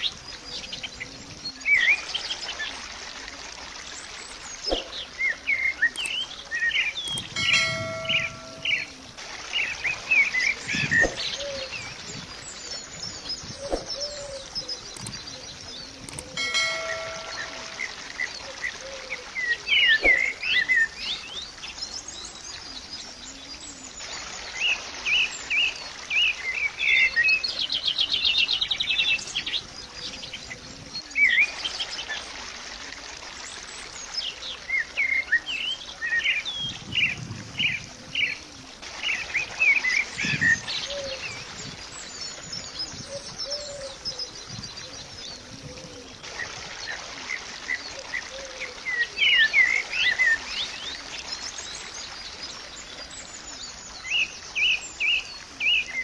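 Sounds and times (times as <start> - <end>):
songbirds chirping and twittering: 0.0 - 56.0
rapid bird trill: 7.1 - 8.9, 16.3 - 18.0.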